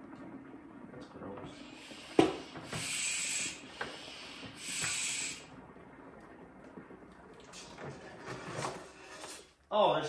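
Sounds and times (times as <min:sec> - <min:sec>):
hand pump hissing: 0:01.6 - 0:05.5.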